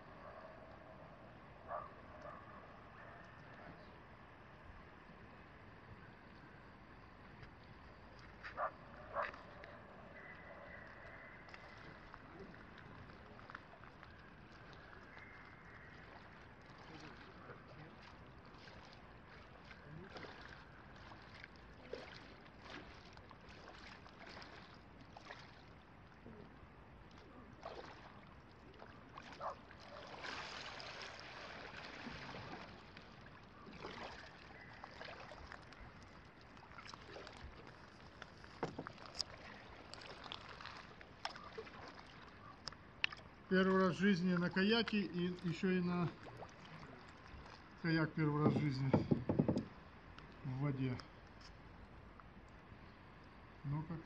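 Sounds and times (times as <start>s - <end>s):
kayak paddle strokes and splashes: 6.2s - 52.7s.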